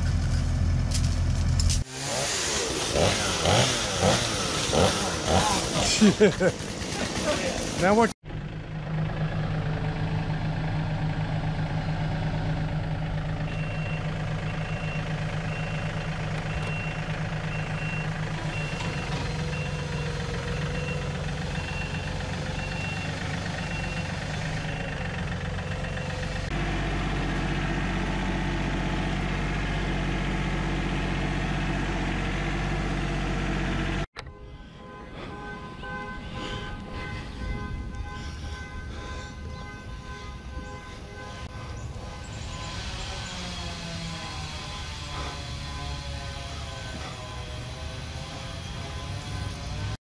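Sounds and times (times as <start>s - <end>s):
tractor diesel engine running: 0.0s - 50.0s
backup alarm beeping: 13.5s - 25.0s.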